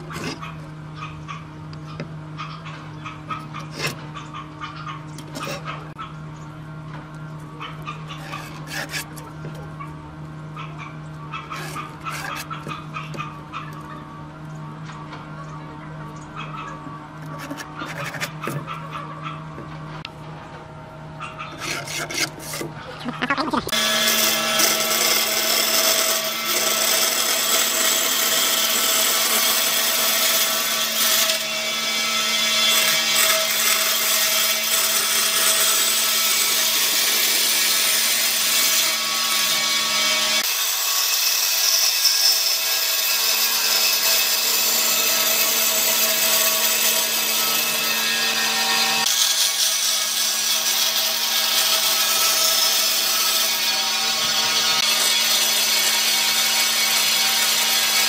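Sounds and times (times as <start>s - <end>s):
saw blade rasping through wood: 0.0s - 0.6s, 2.6s - 4.2s, 5.2s - 6.0s, 7.8s - 9.3s, 11.3s - 13.3s, 17.2s - 19.0s, 21.4s - 22.8s, 23.6s - 58.0s
band saw motor hum: 0.0s - 58.0s.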